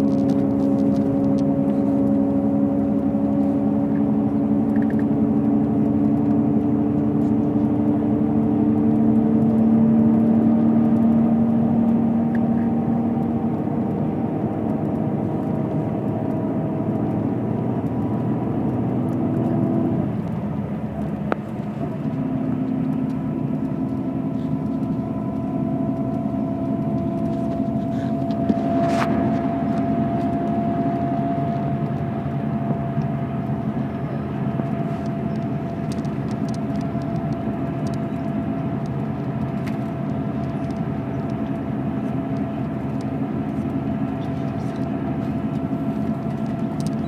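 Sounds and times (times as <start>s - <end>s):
thin steady whine: 0.0s - 47.0s
vehicle engine and tyre drone: 0.0s - 47.0s.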